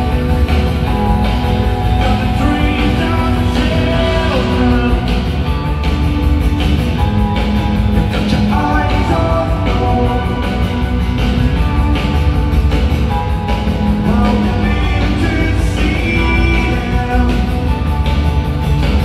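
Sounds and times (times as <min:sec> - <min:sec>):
live rock band with singing: 0:00.0 - 0:19.0.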